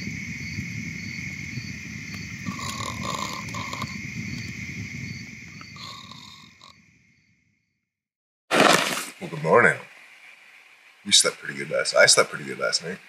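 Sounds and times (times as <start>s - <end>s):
campfire crackling: 0.0s - 6.9s, 8.5s - 13.0s
insects trilling: 0.0s - 7.4s, 8.6s - 13.0s
animal calls: 2.4s - 4.0s, 5.7s - 6.7s.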